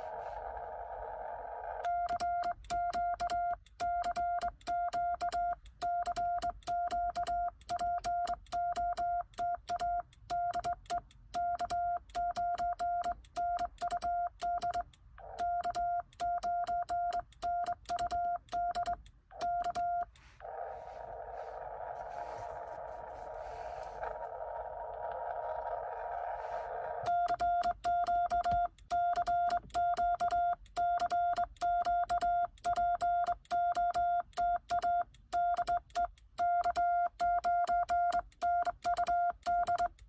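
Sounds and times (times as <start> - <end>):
morse code beeps: 1.9 - 20.3, 27.0 - 40.0
key clicks: 2.0 - 20.2.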